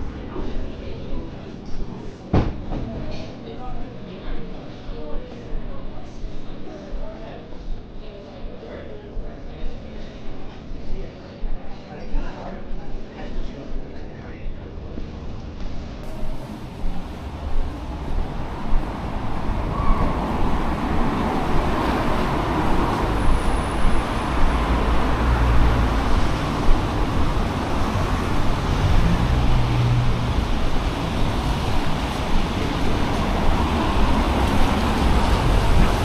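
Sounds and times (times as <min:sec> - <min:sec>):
road traffic passing: 0:16.0 - 0:36.0.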